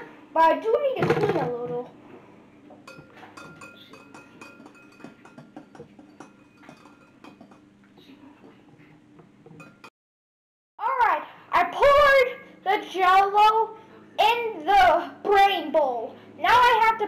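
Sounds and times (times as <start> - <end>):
metal utensil clinking on glass: 2.8 - 7.6, 9.5 - 9.9.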